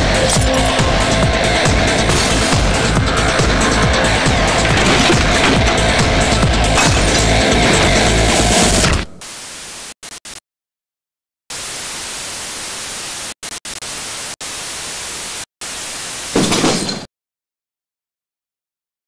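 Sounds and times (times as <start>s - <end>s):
music: 0.0s - 8.9s
static hiss: 9.2s - 10.4s, 11.5s - 16.4s.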